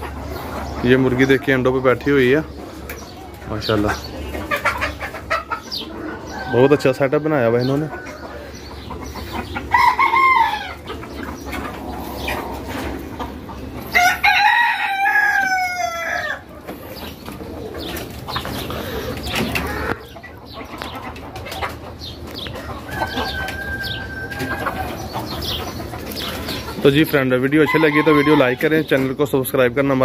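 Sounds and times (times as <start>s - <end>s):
chickens clucking: 0.0s - 30.0s
rooster crowing: 13.9s - 16.5s.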